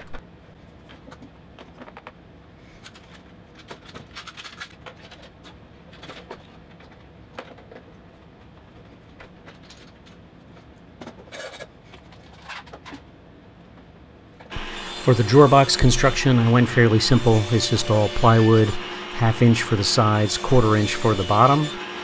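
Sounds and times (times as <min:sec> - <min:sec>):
metal scraping against wood: 0:14.5 - 0:22.0.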